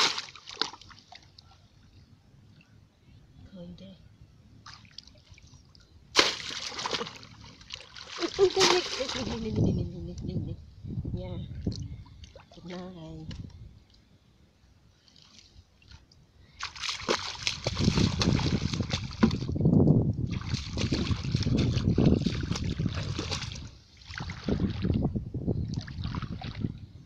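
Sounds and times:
legs wading through muddy water: 0.0s - 1.6s, 4.6s - 9.6s, 15.0s - 19.6s, 20.2s - 25.0s.

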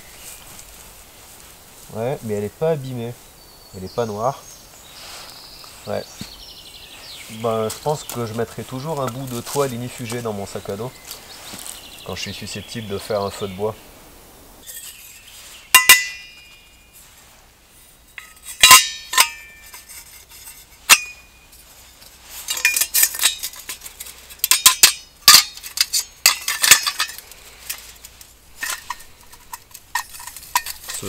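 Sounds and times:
metal cookware clinking: 14.6s - 16.6s, 18.2s - 21.3s, 24.4s - 27.2s, 28.6s - 31.0s.

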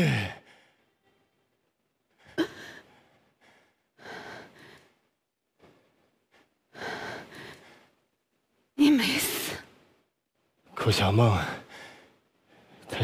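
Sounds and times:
woman sobbing: 2.2s - 3.0s.

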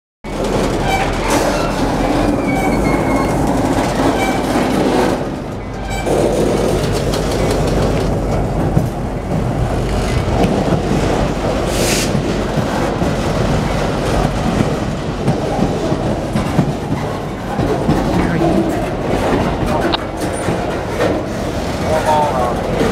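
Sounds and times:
train wheels rumbling on rails: 0.2s - 22.9s
wheels clacking over rail joints: 0.3s - 18.1s, 19.0s - 22.9s
high wheel squeals: 0.8s - 3.4s.

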